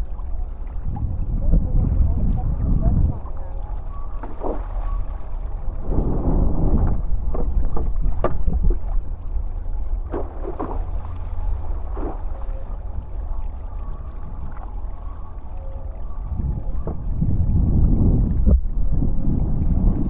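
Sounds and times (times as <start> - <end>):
wind rumbling on microphone: 0.0 - 20.0
water splashing and hissing: 10.1 - 12.8.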